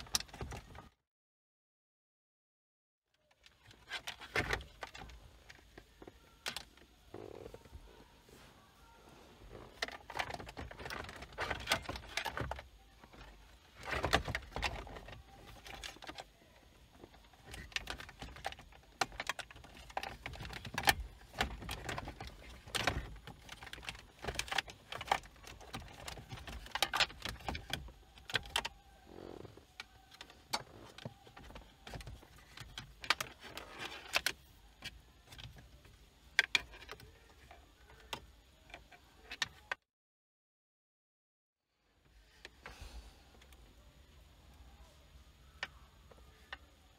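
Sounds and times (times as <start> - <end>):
plastic trim panels clicking and rattling: 0.0 - 0.8, 3.4 - 6.9, 9.6 - 28.8, 29.6 - 39.8.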